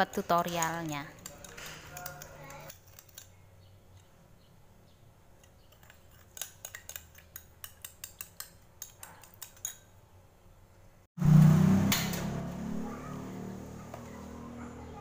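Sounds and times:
spoon clinking against bowl: 0.0s - 3.3s, 5.4s - 9.9s.

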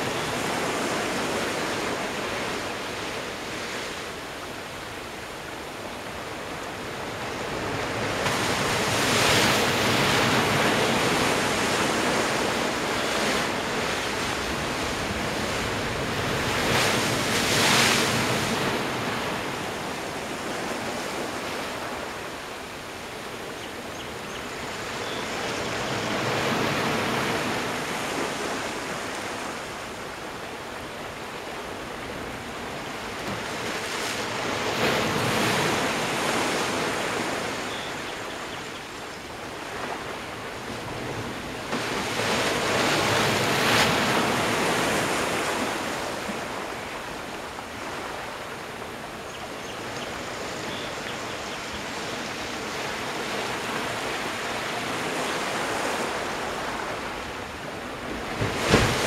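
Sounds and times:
waves crashing on rocks: 0.0s - 23.3s, 25.4s - 38.2s, 39.4s - 49.2s, 50.1s - 59.0s.

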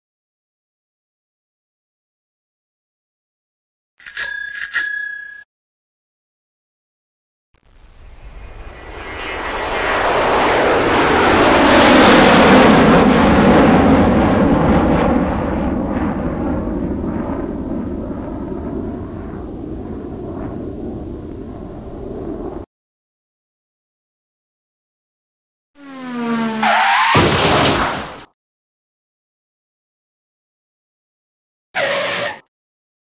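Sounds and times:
aircraft engine passing: 7.7s - 22.7s.

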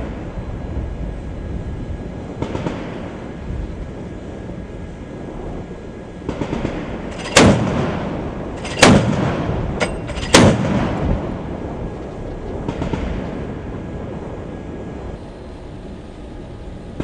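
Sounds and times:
ship noise: 0.0s - 17.0s
wind rushing: 0.0s - 17.0s
heavy gun shots: 6.3s - 11.3s, 12.6s - 13.5s.

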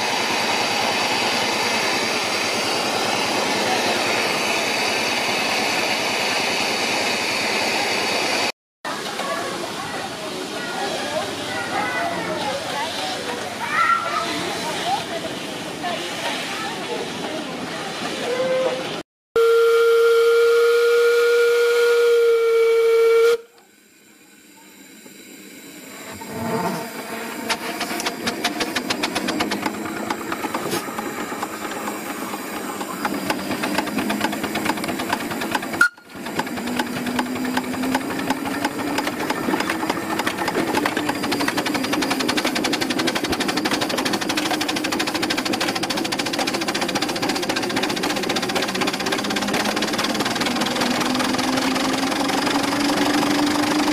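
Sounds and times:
steam hissing: 0.0s - 8.5s, 20.2s - 53.9s
steam exhaust chuffing: 17.9s - 53.9s
steam whistle blast: 18.2s - 23.6s, 35.8s - 36.2s.

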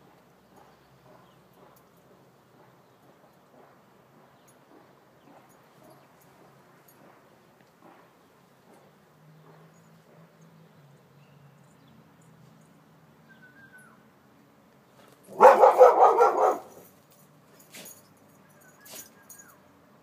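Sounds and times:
dog barking: 15.3s - 16.9s.

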